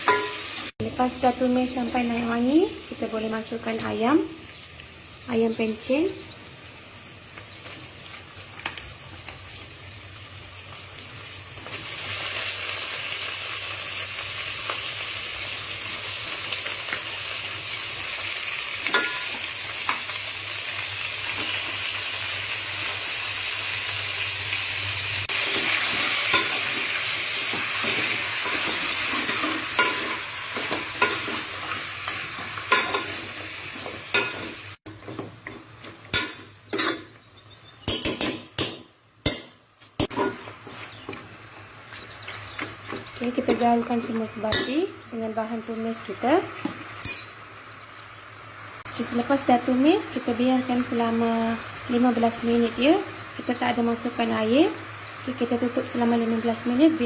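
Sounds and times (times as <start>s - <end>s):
metal spoon stirring against pot: 0.0s - 0.5s, 27.5s - 31.8s
chicken sizzling in hot oil: 0.0s - 34.9s, 40.0s - 57.0s.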